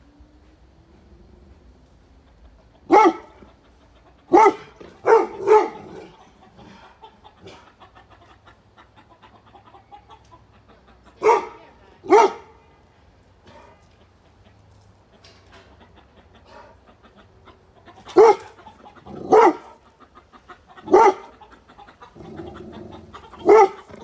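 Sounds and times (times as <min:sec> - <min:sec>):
dog barking: 0:02.9 - 0:03.5, 0:04.3 - 0:06.2, 0:11.2 - 0:12.6, 0:18.1 - 0:19.8, 0:20.8 - 0:21.4, 0:23.3 - 0:24.0.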